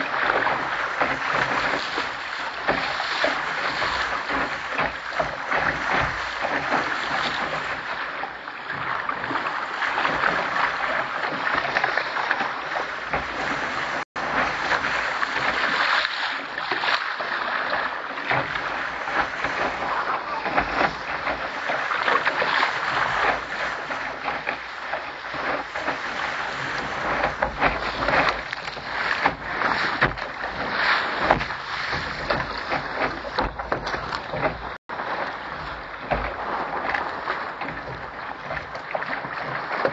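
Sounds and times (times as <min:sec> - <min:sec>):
water splashing against hull: 0:00.0 - 0:39.9.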